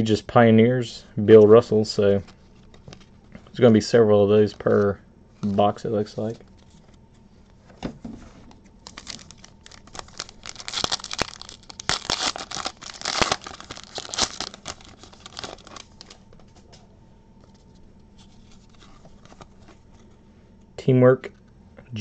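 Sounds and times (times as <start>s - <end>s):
foil pack tearing and crinkling: 8.8s - 16.2s.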